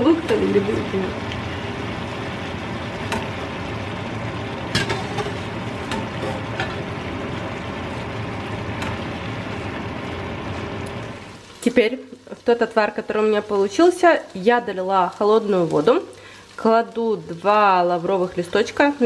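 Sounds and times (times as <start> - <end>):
mushrooms and onion sizzling: 0.0 - 19.0.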